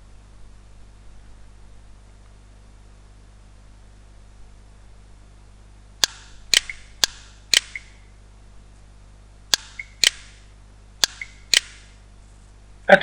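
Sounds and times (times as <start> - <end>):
faint low hum: 0.0 - 13.0
sharp clicks: 6.0 - 8.1, 9.5 - 12.0.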